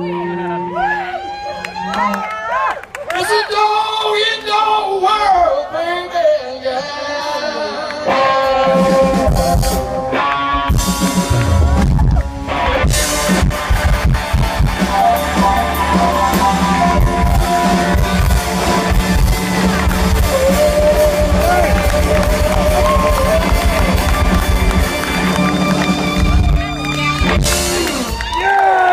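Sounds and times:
electric guitar notes: 8.0 - 28.4
bass guitar: 8.0 - 28.6
drums: 8.0 - 28.9.

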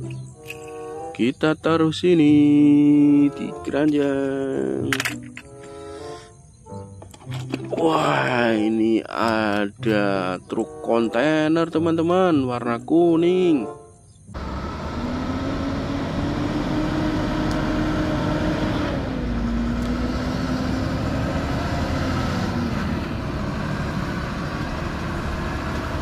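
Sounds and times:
truck diesel engine rumbling: 14.3 - 26.0.

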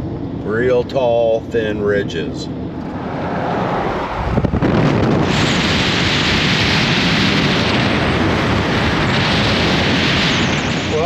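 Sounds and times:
car road rumble: 0.0 - 11.0
wind buffeting microphone: 2.6 - 11.0.

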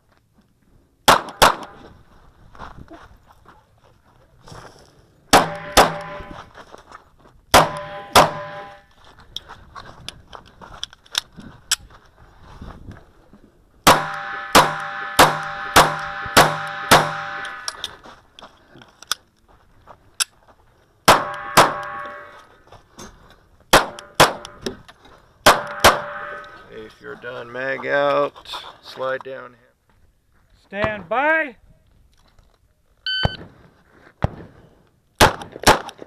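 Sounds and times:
pistol shots: 1.1 - 1.8, 5.3 - 6.2, 7.5 - 8.8, 13.8 - 17.7, 21.1 - 22.3, 23.7 - 24.6, 25.4 - 26.5, 35.2 - 36.0
metallic ringing: 25.6 - 26.6.

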